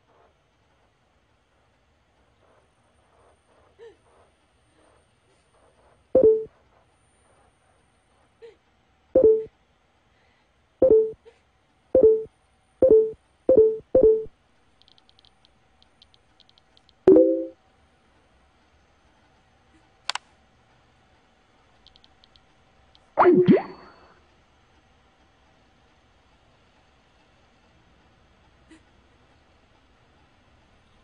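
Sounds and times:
notification blips: 6.2s - 6.5s, 9.2s - 9.5s, 10.8s - 11.2s, 12.0s - 14.3s, 17.1s - 17.6s, 23.2s - 24.0s.

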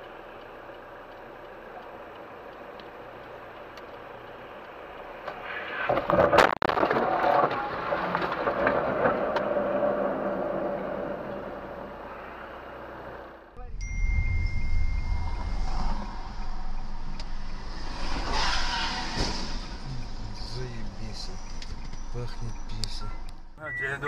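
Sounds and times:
car engine: 0.0s - 24.0s
sharp crack: 16.4s - 20.8s
tyres hissing on wet road: 17.6s - 21.3s.

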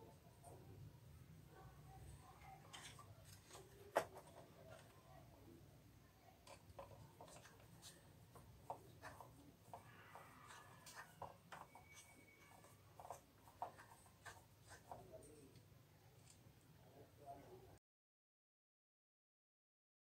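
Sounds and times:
screwdriver clicking and scraping plastic: 6.4s - 16.4s.

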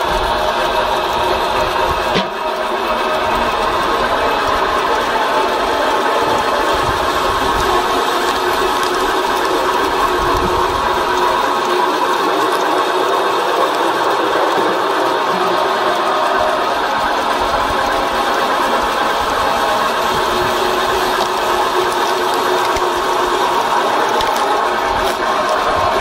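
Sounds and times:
log splitter grinding: 0.0s - 26.0s
wood clicking: 24.0s - 25.6s.

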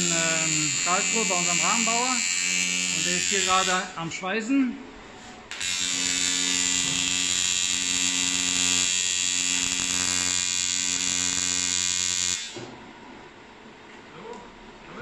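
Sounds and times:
welding arc buzzing: 0.0s - 4.0s, 5.5s - 12.6s.

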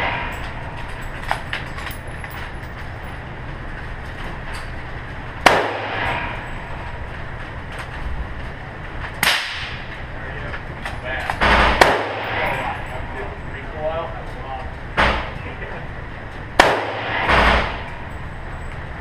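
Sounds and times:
steady low hum: 0.0s - 19.0s
gunshots ringing indoors: 5.4s - 7.0s, 9.2s - 10.0s, 11.2s - 13.0s, 16.5s - 18.2s.

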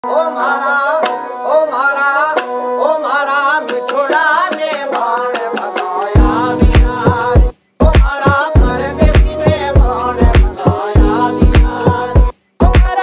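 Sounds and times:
heavy bass beat: 6.2s - 13.0s
sharp percussion strikes: 6.2s - 13.0s
wavering melody: 8.6s - 12.0s.

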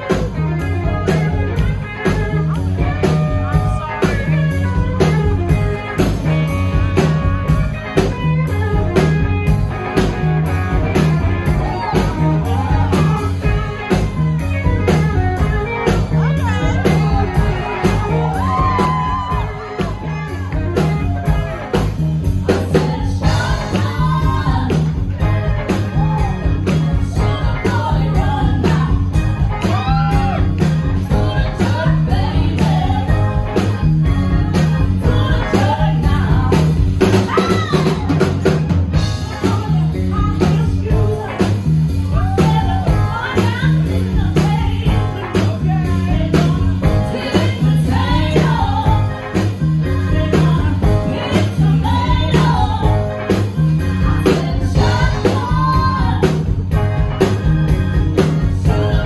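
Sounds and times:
bass guitar: 0.0s - 59.0s
drum kit beat: 0.0s - 59.0s
electric guitars: 0.0s - 59.0s
women singing lead: 11.4s - 57.4s, 58.2s - 59.0s.

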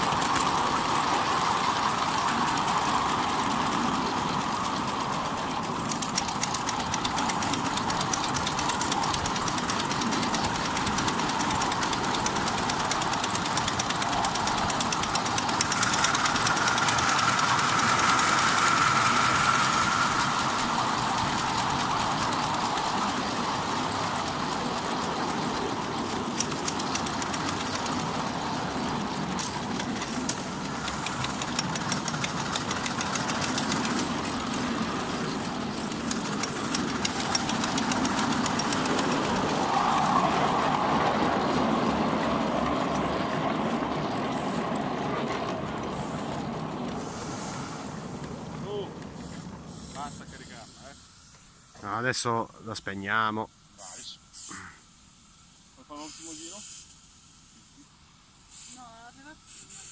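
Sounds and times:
rail-joint clicks: 0.0s - 40.1s
train wheels rushing on rails: 0.0s - 53.7s.

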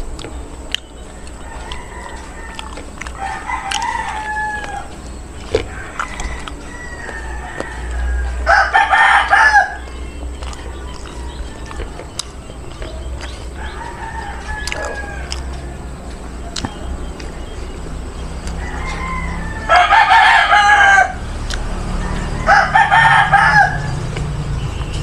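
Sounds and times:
rooster crowing: 1.1s - 24.5s.

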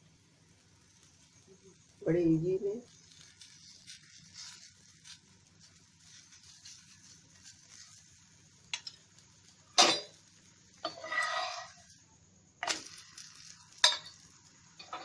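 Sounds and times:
food sizzling in oil: 0.0s - 15.0s
steel spoon scraping and clicking: 10.8s - 11.9s.

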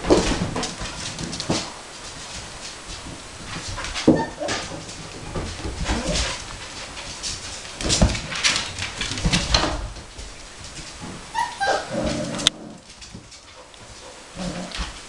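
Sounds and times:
paws scuffling and knocking: 0.0s - 15.0s
puppy whimper: 4.1s - 4.6s, 11.3s - 12.1s.

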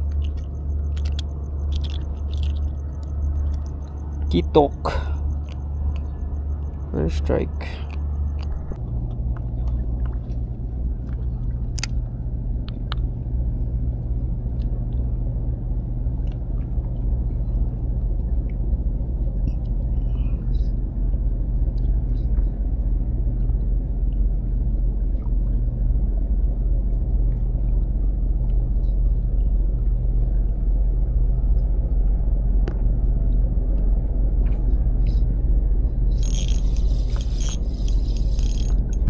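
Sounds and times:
low engine drone: 0.0s - 39.0s.

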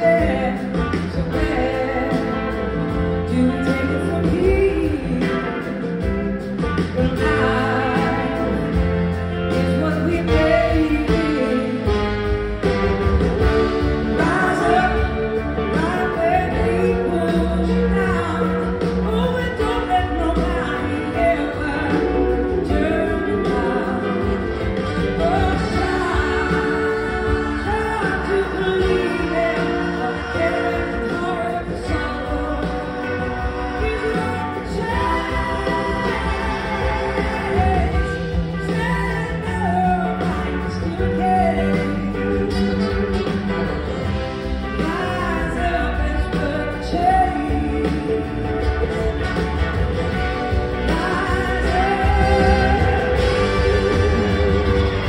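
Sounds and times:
woman singing lead vocal: 0.0s - 12.1s, 13.8s - 43.4s, 44.7s - 49.1s, 50.5s - 55.0s
bass guitar: 0.0s - 55.0s
drums: 0.0s - 55.0s
electric guitars: 0.0s - 55.0s
keyboards: 0.0s - 55.0s
rock band playing: 0.0s - 55.0s
backing singers: 19.8s - 42.6s, 50.3s - 55.0s.

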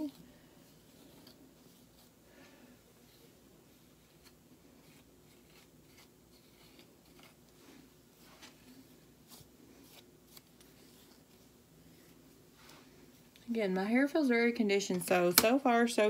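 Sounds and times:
comb scratching through wet hair: 3.2s - 12.2s.

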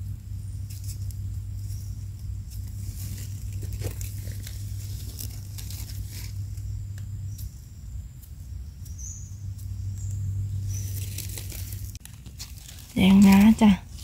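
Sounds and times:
steady low hum: 0.0s - 14.0s
knife scraping soil: 2.5s - 6.6s.

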